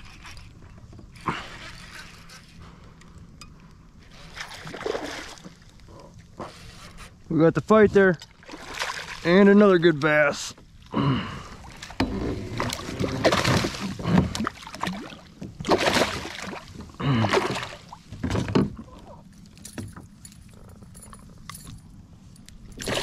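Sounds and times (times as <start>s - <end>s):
fish splashing in net: 12.8s - 16.7s.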